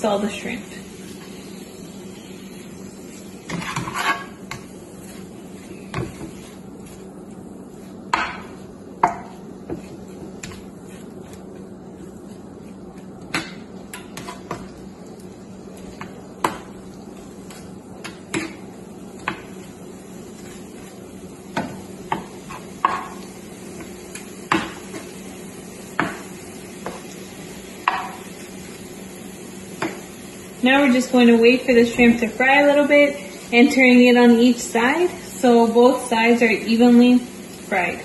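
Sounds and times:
spatula scraping frying pan: 3.4s - 6.6s.

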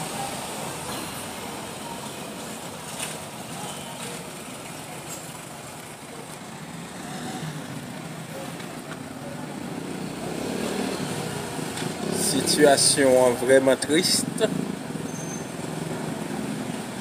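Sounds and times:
cars passing: 0.0s - 17.0s.

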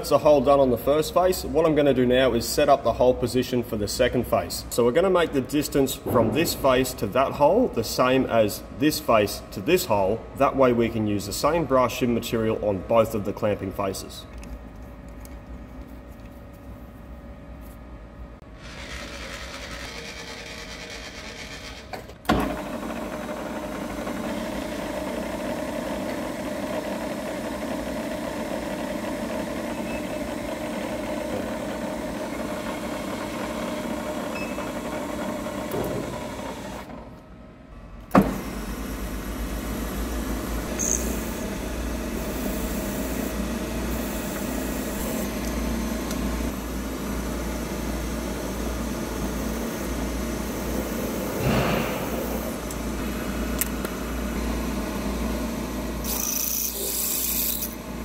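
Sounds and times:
milling machine spindle humming: 18.4s - 37.0s, 38.3s - 58.0s.

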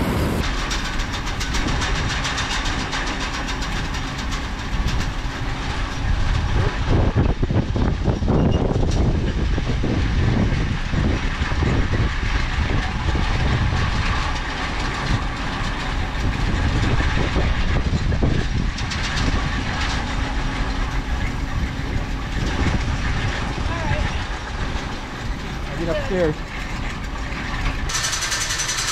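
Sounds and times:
chain conveyor clattering: 0.4s - 9.4s, 11.0s - 28.9s.

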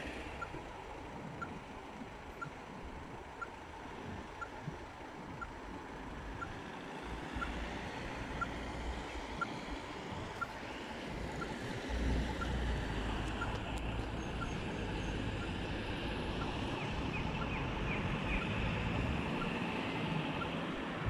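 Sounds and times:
bus driving off: 0.0s - 21.0s
low engine rumble: 0.0s - 21.0s
vehicles passing: 0.0s - 21.0s
faint regular tick: 13.2s - 14.6s.

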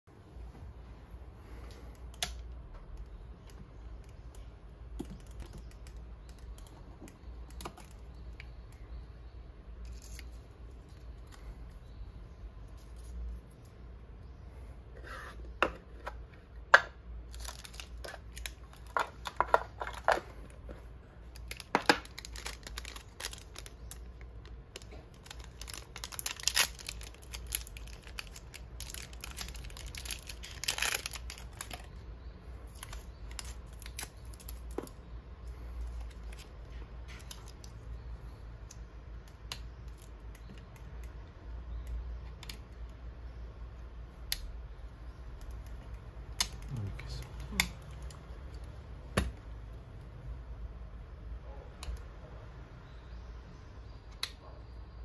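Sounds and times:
foil wrapper crinkling: 17.3s - 20.3s, 21.3s - 32.0s, 32.6s - 35.0s.

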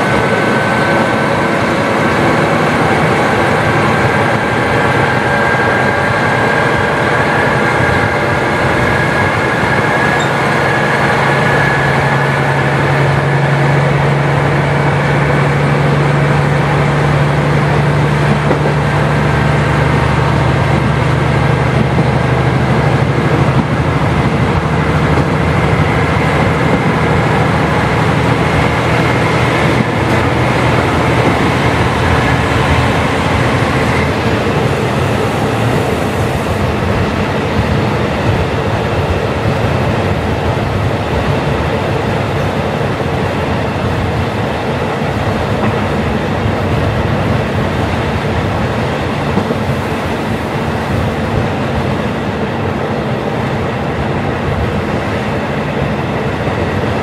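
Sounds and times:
diesel engine drone: 0.0s - 57.0s
thin steady whine: 0.0s - 57.0s
wheel and rail noise: 0.0s - 57.0s.

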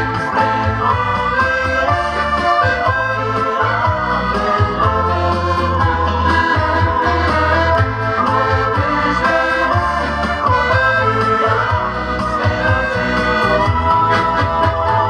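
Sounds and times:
accordion playing a tune: 0.0s - 15.0s.

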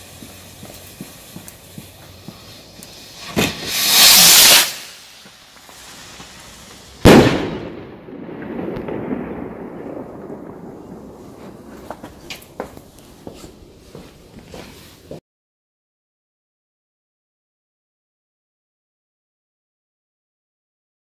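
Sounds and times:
firework hiss: 0.0s - 7.8s
firework bang echoing: 0.0s - 13.8s.

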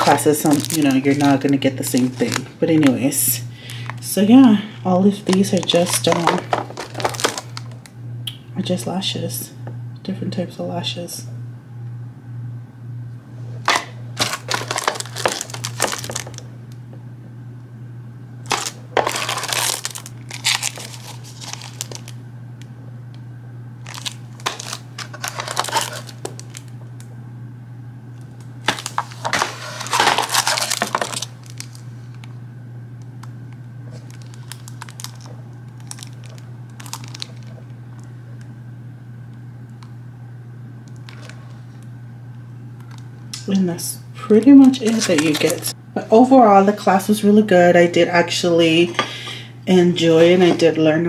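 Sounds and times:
cellophane crinkling: 0.0s - 4.4s, 5.0s - 7.9s, 13.6s - 16.6s, 18.4s - 22.2s, 23.8s - 27.0s, 28.2s - 32.4s, 33.0s - 38.1s, 40.8s - 41.9s, 42.8s - 43.1s, 44.4s - 45.8s
low hum: 0.0s - 51.0s.

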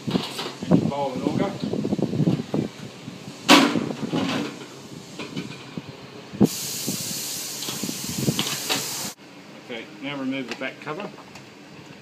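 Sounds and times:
steady hiss: 2.9s - 9.9s.

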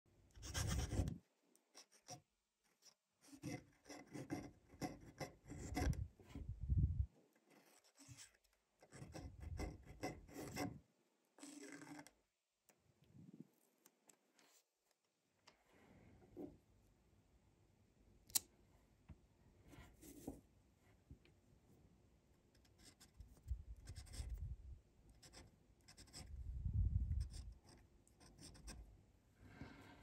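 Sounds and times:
pen nib scratching paper: 0.4s - 2.2s, 2.8s - 6.0s, 7.5s - 10.8s, 11.4s - 12.1s, 22.6s - 24.4s, 25.2s - 26.3s, 27.1s - 28.8s.

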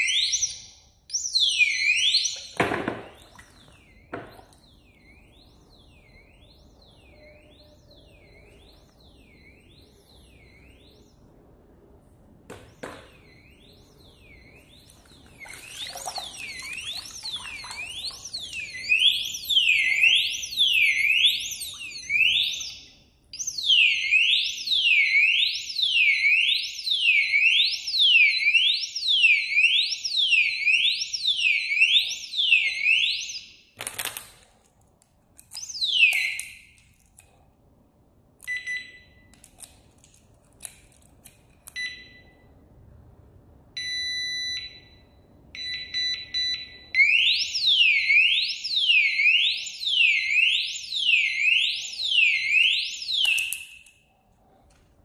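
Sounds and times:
alarm siren wailing: 0.0s - 0.7s, 1.3s - 2.6s, 3.2s - 11.4s, 13.2s - 33.6s, 43.8s - 53.9s.

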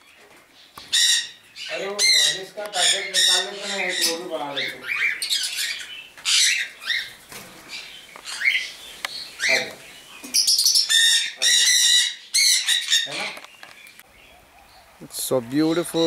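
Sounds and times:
parrots calling: 0.0s - 16.0s
parrots screeching harshly: 0.8s - 13.4s.

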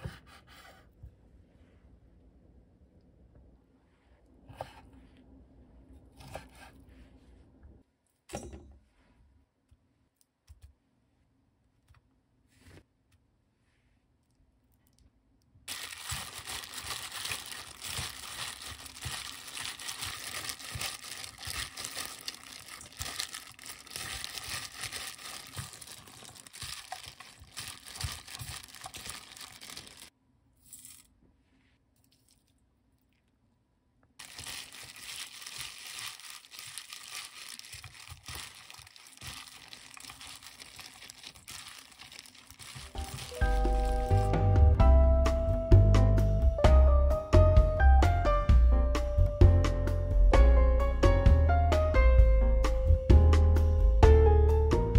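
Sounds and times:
hands mixing greens in bowl: 15.7s - 30.1s, 34.2s - 44.3s.

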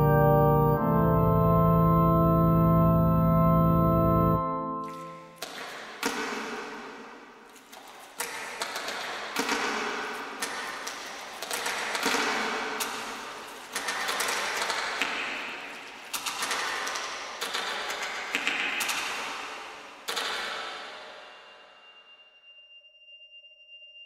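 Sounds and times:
clicking electronic music: 0.0s - 5.4s.

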